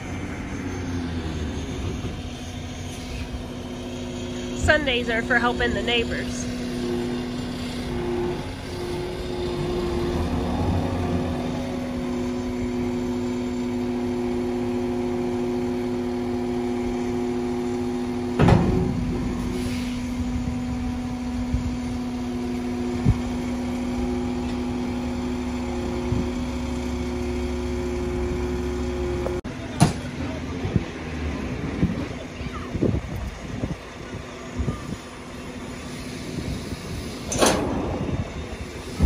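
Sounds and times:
diesel engine idling: 0:00.0 - 0:39.0
loud metal clank: 0:18.3 - 0:20.6.

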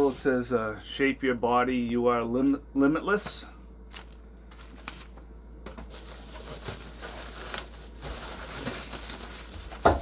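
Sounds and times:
plastic wrapping crinkling: 0:03.9 - 0:10.0.

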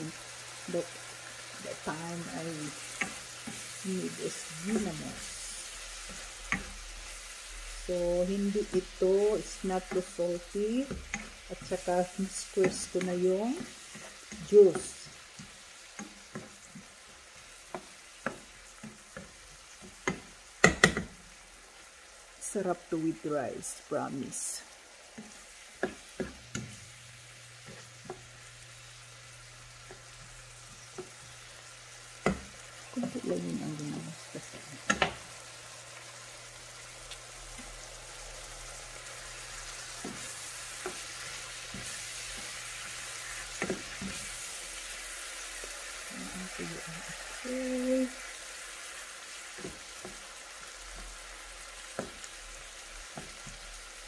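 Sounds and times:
vegetables sizzling in a frying pan: 0:00.0 - 0:54.0
spoon clicking against pan: 0:34.8 - 0:35.2.

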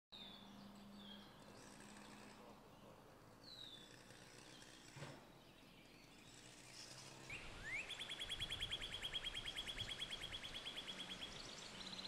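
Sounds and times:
cardinal singing whistles and trills: 0:07.3 - 0:12.0.

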